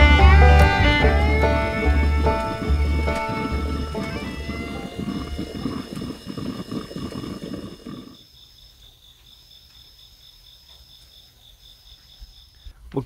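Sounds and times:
intro music: 0.0s - 5.7s
loud low rumbling: 0.0s - 8.2s
insects chirring: 0.0s - 12.8s.

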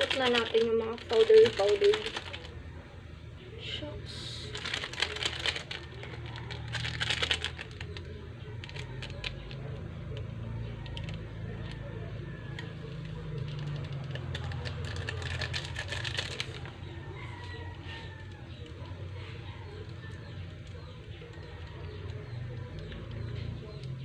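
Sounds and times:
packets rustling: 0.0s - 2.6s, 4.5s - 9.6s, 12.9s - 16.8s.

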